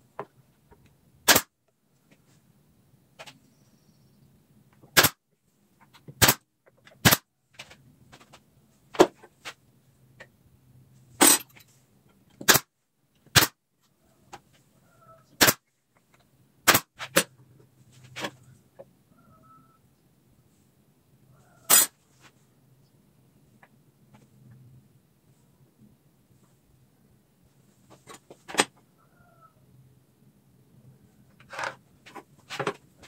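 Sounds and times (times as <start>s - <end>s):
faint low hum: 0.0s - 4.8s.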